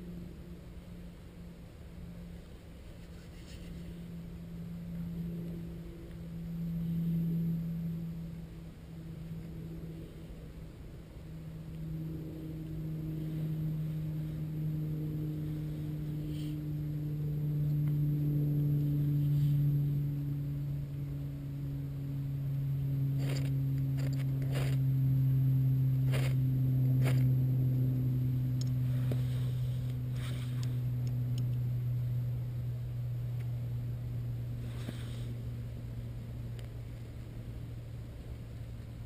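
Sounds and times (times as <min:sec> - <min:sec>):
low droning tone: 0:00.0 - 0:39.0.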